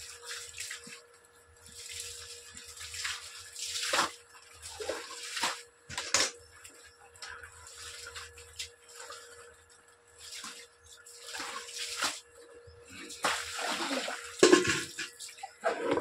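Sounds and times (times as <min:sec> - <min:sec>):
faint steady hum: 0:00.0 - 0:16.0
water sloshing and splashing: 0:00.0 - 0:16.0
wet garment splashing into water: 0:13.2 - 0:14.8.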